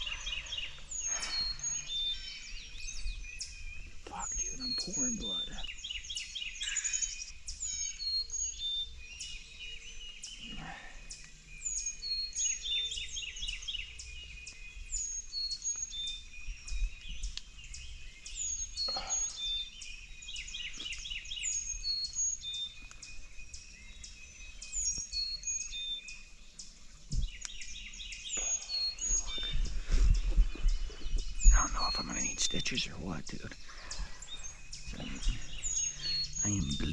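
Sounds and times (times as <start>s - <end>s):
songbirds singing: 0.0s - 36.9s
low thuds: 27.1s - 27.4s.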